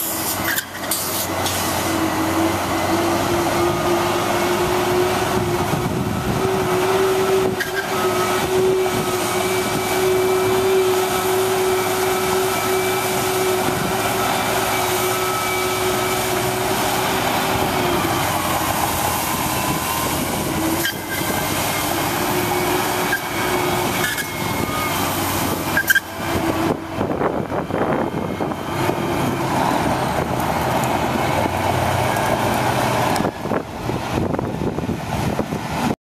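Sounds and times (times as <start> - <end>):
water spray hissing: 0.0 - 1.9
truck engine running: 0.0 - 36.0.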